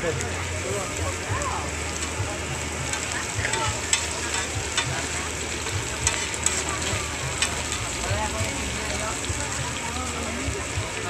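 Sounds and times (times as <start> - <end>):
meat sizzling on griddle: 0.0 - 11.0.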